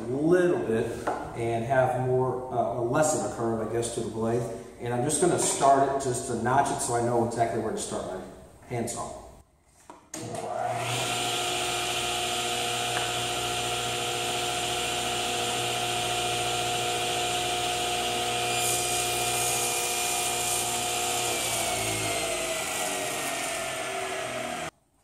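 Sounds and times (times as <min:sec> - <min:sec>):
table saw cutting plywood: 0:10.2 - 0:24.7.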